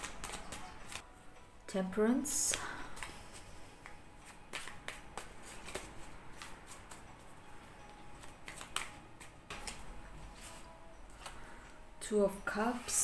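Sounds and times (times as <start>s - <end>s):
cards shuffling: 0.0s - 1.0s, 3.0s - 7.3s, 8.2s - 10.6s.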